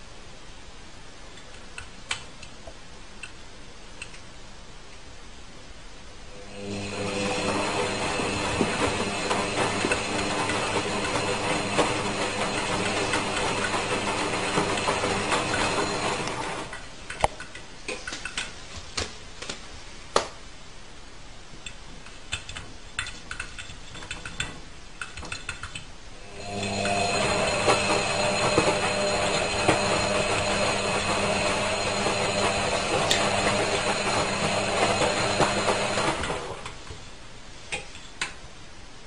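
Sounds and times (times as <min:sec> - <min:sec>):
washing machine drum turning: 0:07.1 - 0:16.8, 0:26.4 - 0:36.7.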